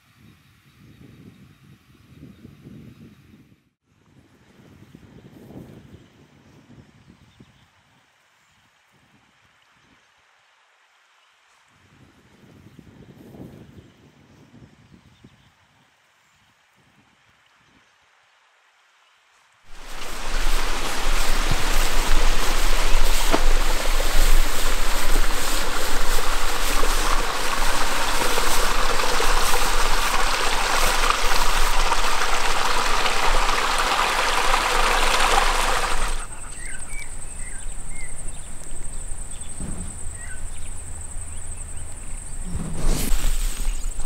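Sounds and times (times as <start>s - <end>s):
running water rushing: 19.7s - 41.8s.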